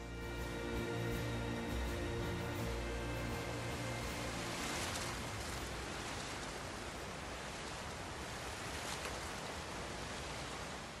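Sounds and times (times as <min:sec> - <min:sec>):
low sustained music notes: 0:00.0 - 0:07.9.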